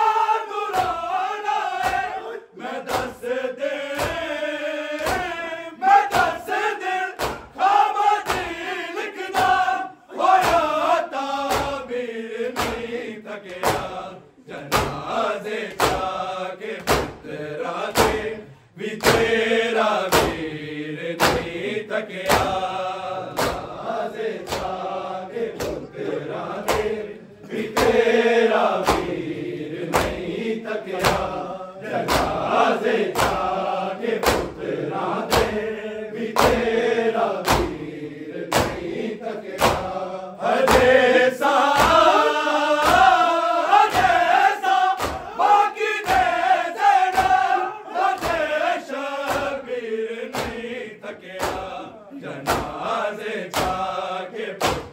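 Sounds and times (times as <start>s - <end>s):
men chanting together: 0.0s - 54.9s
chest beating slaps: 0.7s - 1.2s, 1.8s - 5.4s, 6.0s - 16.2s, 16.8s - 18.4s, 19.0s - 20.6s, 21.2s - 36.8s, 37.4s - 37.8s, 38.5s - 40.0s, 40.6s - 48.6s, 49.2s - 49.6s, 50.3s - 50.7s, 51.3s - 52.9s, 53.5s - 53.9s, 54.5s - 54.9s.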